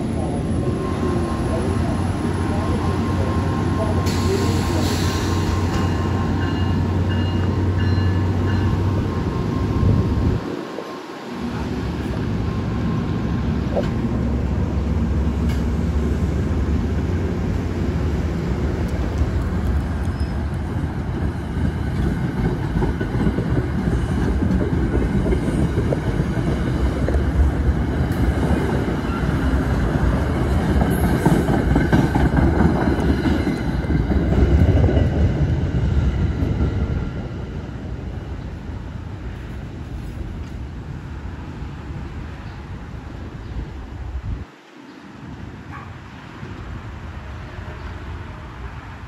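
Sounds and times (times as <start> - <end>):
train rumbling past: 0.0 - 49.0
train wheel clatter: 21.6 - 35.2.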